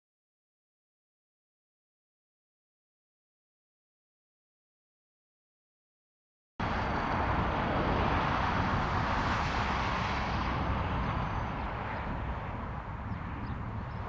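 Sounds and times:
distant vehicle rumbling: 0:06.6 - 0:14.0.

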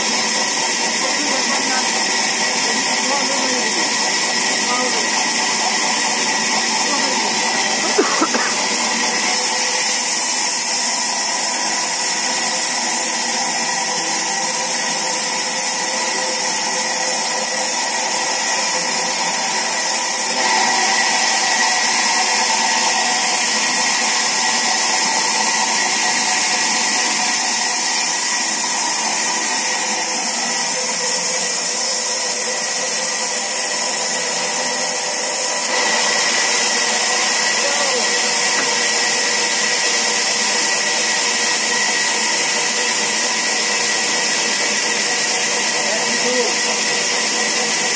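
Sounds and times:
sawmill saw running: 0:00.0 - 0:47.9.

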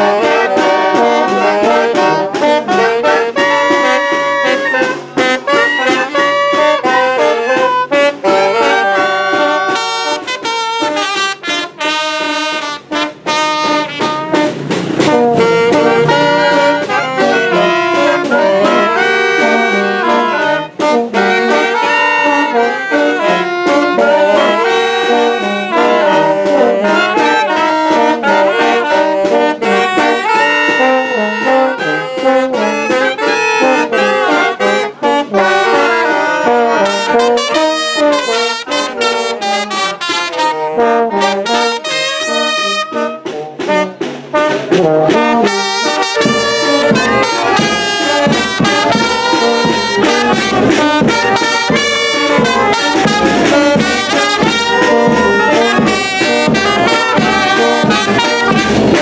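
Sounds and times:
clarinet: 0:00.0 - 0:59.0
saxophones: 0:00.0 - 0:59.0
trumpets: 0:00.0 - 0:59.0
tuba bass notes: 0:00.0 - 0:59.0
bass drum: 0:00.6 - 0:22.6, 0:36.7 - 0:59.0.

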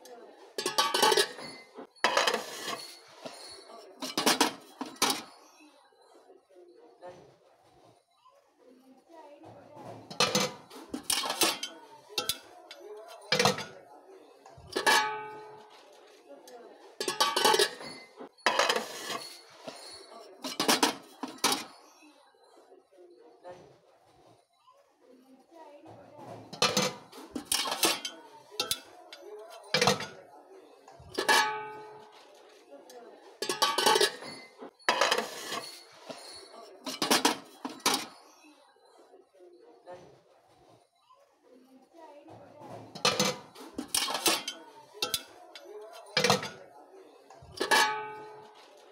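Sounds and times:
pots and pans clanking: 0:00.5 - 0:05.3, 0:09.8 - 0:13.8, 0:14.6 - 0:15.8, 0:17.0 - 0:21.7, 0:26.2 - 0:30.2, 0:31.0 - 0:32.2, 0:33.4 - 0:38.2, 0:42.7 - 0:46.7, 0:47.4 - 0:48.9
metal lid clinking: 0:00.6 - 0:03.4, 0:10.1 - 0:12.5, 0:14.7 - 0:15.6, 0:17.0 - 0:19.8, 0:20.4 - 0:21.7, 0:26.6 - 0:28.9, 0:31.2 - 0:31.9, 0:33.4 - 0:36.2, 0:43.0 - 0:46.6, 0:47.6 - 0:48.5.

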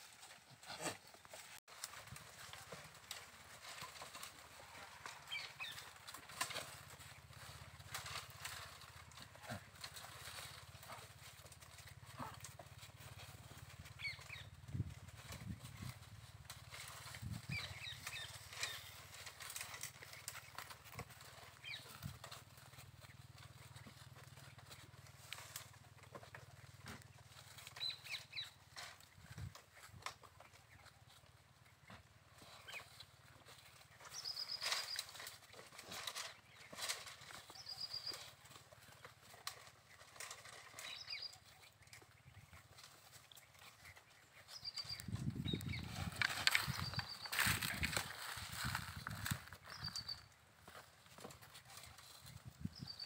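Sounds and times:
rustling leaves and crackling twigs: 0:00.0 - 0:53.0
bird chirping trill: 0:44.4 - 0:47.6, 0:49.6 - 0:50.3.

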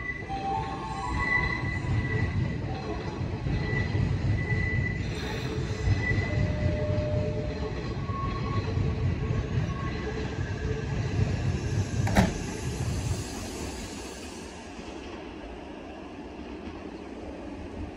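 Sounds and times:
train equipment humming: 0:00.0 - 0:17.9
train doors closing: 0:11.7 - 0:15.3.

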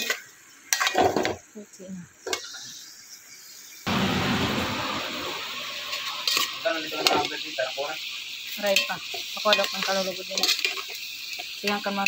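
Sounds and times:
meat sizzling in a pot: 0:00.0 - 0:12.0
metal spoon stirring and clinking: 0:08.7 - 0:11.9.

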